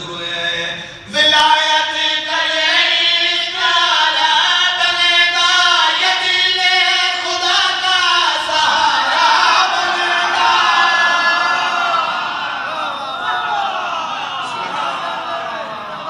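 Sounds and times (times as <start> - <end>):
man chanting into a microphone: 0.0 - 10.4.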